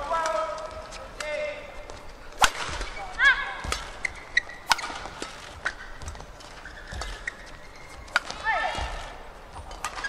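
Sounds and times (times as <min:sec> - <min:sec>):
shoe squeaking on court floor: 0:01.8 - 0:10.0
racket striking shuttlecock: 0:02.3 - 0:10.0.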